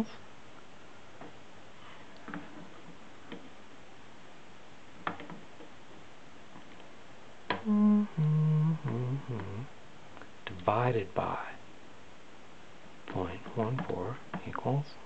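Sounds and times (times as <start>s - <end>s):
man humming: 7.5s - 9.8s.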